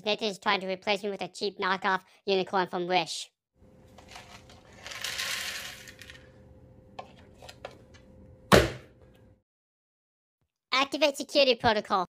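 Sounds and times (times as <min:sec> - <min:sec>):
dry cereal rattling into plastic bin: 0:04.0 - 0:06.3.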